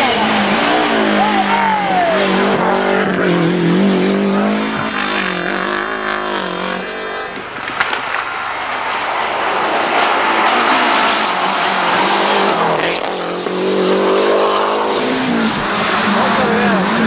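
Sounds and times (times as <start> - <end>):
rally car engine revving: 0.0 - 7.5, 8.6 - 17.0
second rally car approaching: 0.0 - 7.6, 8.8 - 17.0
engine sharp crack: 4.7 - 13.1.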